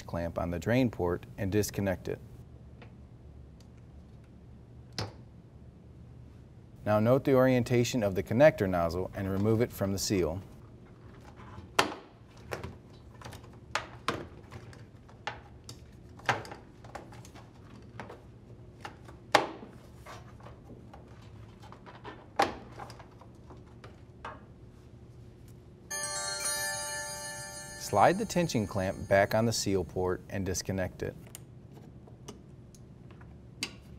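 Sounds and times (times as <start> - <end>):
bright musical chime: 25.9 - 29.8.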